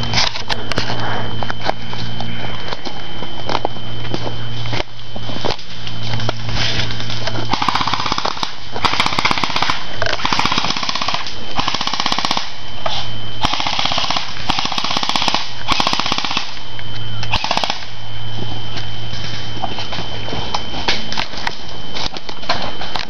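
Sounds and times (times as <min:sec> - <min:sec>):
airsoft guns firing bursts: 0:07.5 - 0:12.6, 0:13.4 - 0:16.6, 0:17.3 - 0:17.9.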